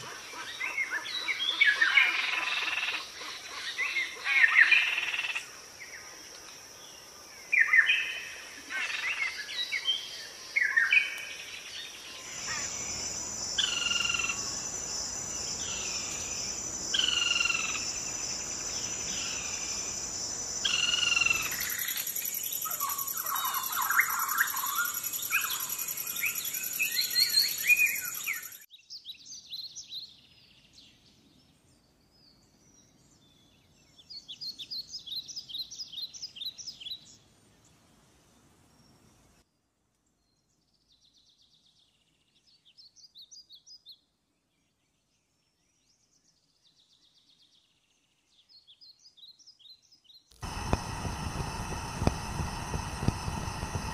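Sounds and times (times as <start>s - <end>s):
birds calling: 12.0s - 28.6s
steady high whine: 12.2s - 28.2s, 50.4s - 53.9s
bird trill: 20.6s - 28.6s.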